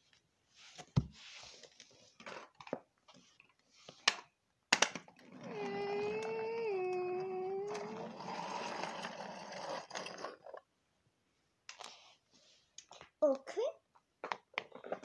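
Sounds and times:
person humming engine vroom: 0:05.5 - 0:08.1.

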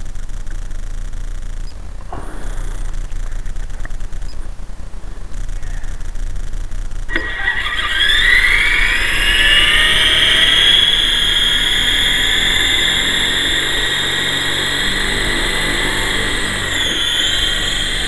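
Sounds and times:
rc helicopter motor whine: 0:05.1 - 0:18.0.

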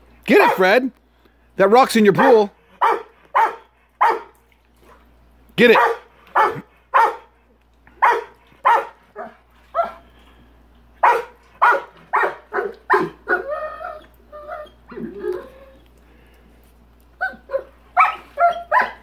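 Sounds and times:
dog barking: 0:02.2 - 0:04.3, 0:05.7 - 0:07.3, 0:08.0 - 0:10.0, 0:11.0 - 0:13.4, 0:17.6 - 0:19.0
dog whining yelps: 0:08.0 - 0:10.0, 0:11.0 - 0:15.8, 0:17.2 - 0:19.0.

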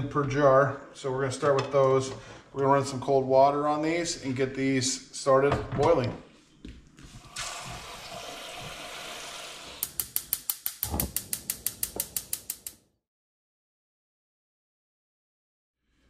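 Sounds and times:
faucet running water into pot: 0:07.2 - 0:12.7
gas igniter clicking rapidly: 0:09.8 - 0:12.8.

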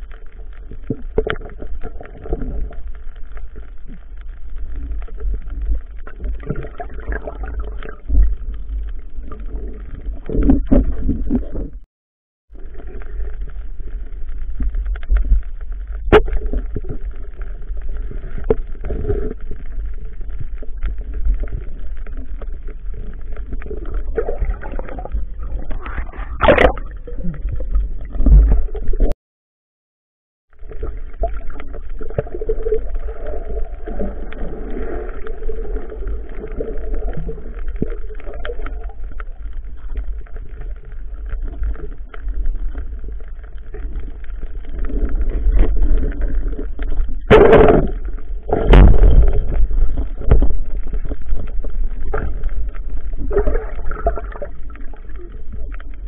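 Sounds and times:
underwater rumble with crackling: 0:00.0 - 0:29.2, 0:30.4 - 0:56.0
water rushing: 0:23.1 - 0:29.1.

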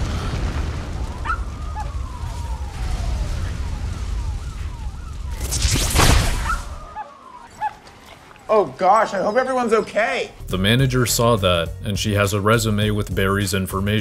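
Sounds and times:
crackling lightning whoosh: 0:00.0 - 0:07.6.

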